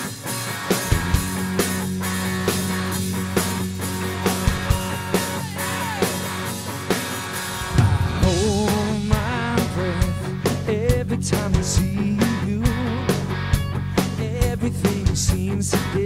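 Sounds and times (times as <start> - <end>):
rock band playing live: 0.0 - 16.0
lead vocal singing: 4.6 - 6.4, 7.6 - 13.2.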